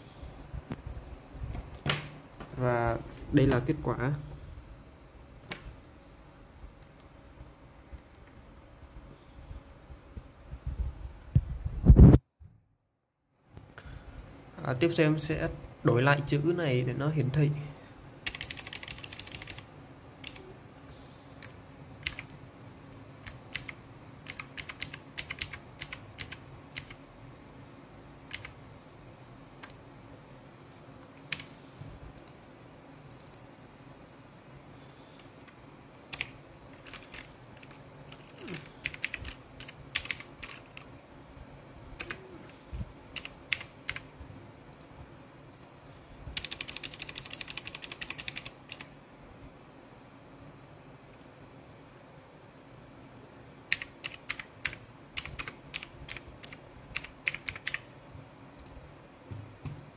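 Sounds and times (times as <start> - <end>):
laptop keyboard typing: 18.2 - 20.5, 21.4 - 22.4, 23.2 - 27.0, 28.3 - 28.6, 31.3 - 31.5, 36.1 - 40.9, 42.0 - 42.2, 43.1 - 44.1, 46.4 - 48.9, 53.7 - 57.9.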